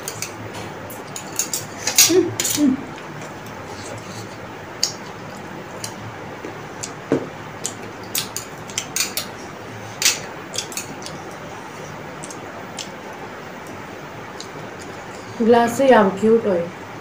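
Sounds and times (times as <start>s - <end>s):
chopsticks tapping plates: 0.0s - 11.5s.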